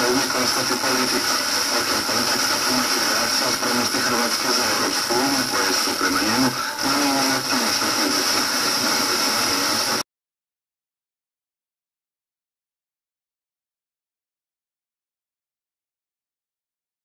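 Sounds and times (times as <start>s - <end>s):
faint radio talk: 0.0s - 10.0s
radio static hiss: 0.0s - 10.0s.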